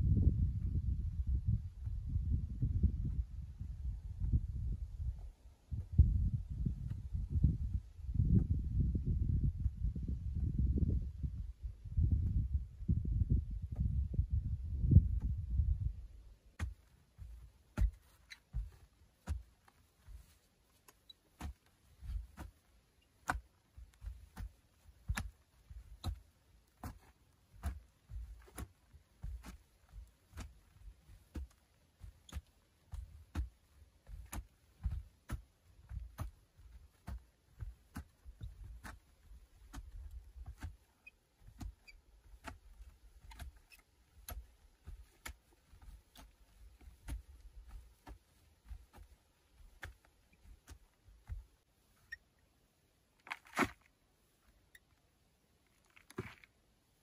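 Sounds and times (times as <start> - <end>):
shovel chopping into earth: 53.3 - 53.9.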